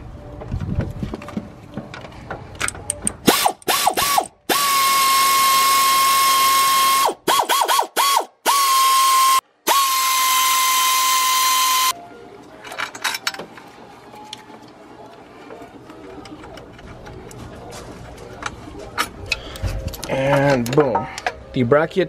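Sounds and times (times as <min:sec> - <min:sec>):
air ratchet whining: 0:02.9 - 0:11.9.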